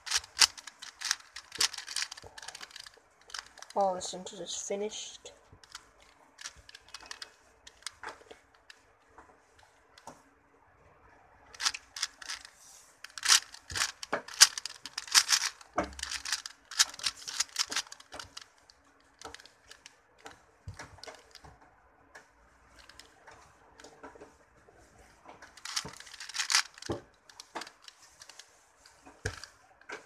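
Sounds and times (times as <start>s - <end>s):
puzzle cube clicking: 0.0s - 3.8s, 5.6s - 8.7s, 11.5s - 18.5s, 19.2s - 19.9s, 25.6s - 28.4s.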